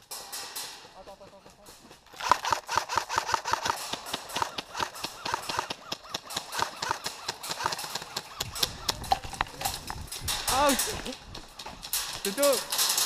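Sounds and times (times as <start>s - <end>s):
gear rattling: 9.0s - 13.0s.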